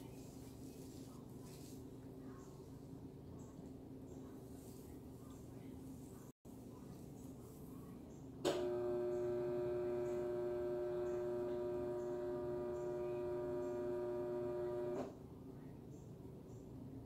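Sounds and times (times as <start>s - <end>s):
steady hum-like tone: 7.8s - 15.0s.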